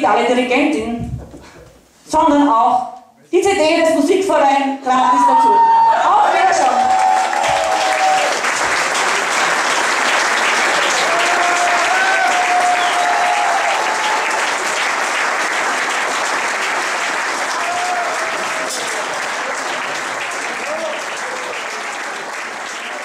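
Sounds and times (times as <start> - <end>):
audience applauding: 6.1 - 23.0.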